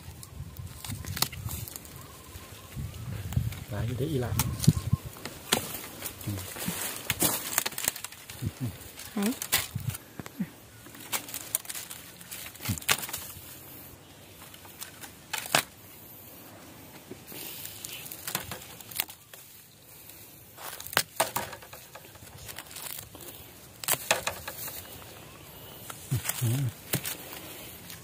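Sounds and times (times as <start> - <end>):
dry bamboo crackling and rustling: 0.0 - 28.0
dry cane snapping: 0.1 - 2.1, 4.3 - 13.6, 14.3 - 15.8, 17.3 - 19.8, 20.6 - 25.1, 25.8 - 28.0.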